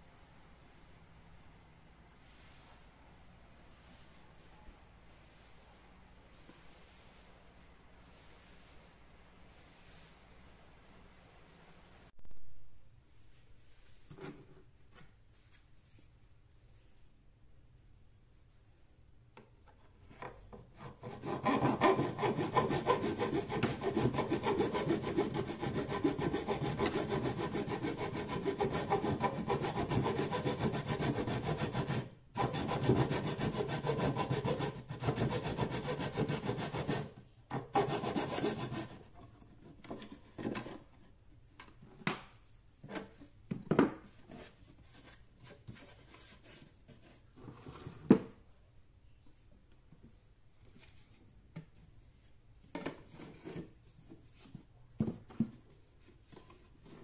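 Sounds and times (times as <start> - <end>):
hacksaw blade sawing plastic pipe: 20.6 - 39.2.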